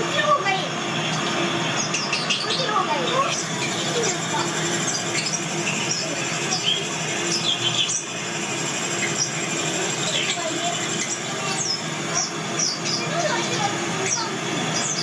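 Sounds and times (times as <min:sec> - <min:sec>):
crowd chatter: 0:00.0 - 0:07.4
high-pitched voices and squeals: 0:00.0 - 0:15.0.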